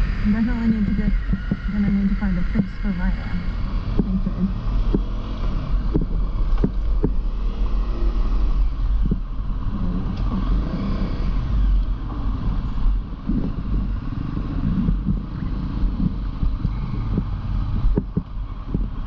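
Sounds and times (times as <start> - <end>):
vehicle running: 0.0 - 19.0
wind rumble on microphone: 0.0 - 19.0.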